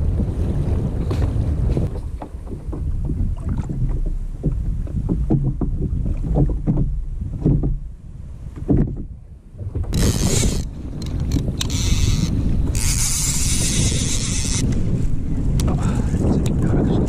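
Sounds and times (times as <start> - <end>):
water slapping against kayak hull: 0.0 - 17.0
wind rumble on microphone: 0.0 - 17.0.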